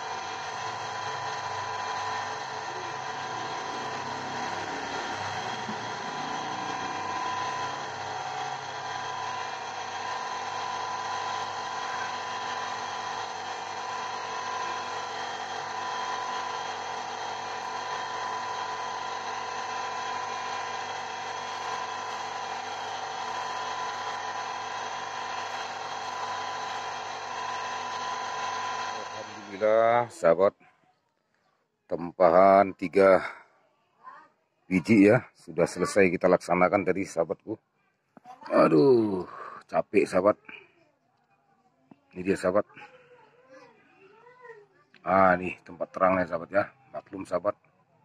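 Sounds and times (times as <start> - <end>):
grinding machine motor whine: 0.0 - 30.2, 38.5 - 40.3.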